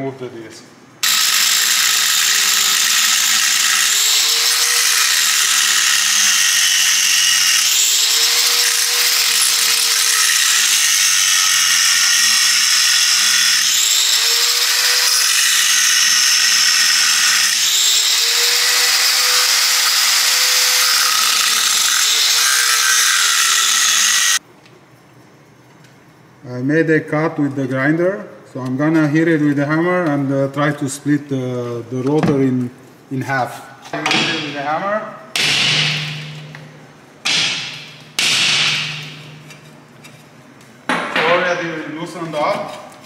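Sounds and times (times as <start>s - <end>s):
angle grinder cutting metal: 1.0s - 24.4s, 35.4s - 36.6s, 37.3s - 39.8s.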